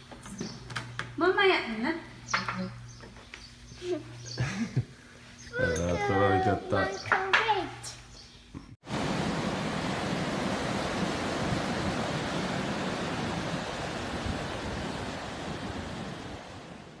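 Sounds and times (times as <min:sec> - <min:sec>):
waves breaking on shore: 0:08.8 - 0:17.0.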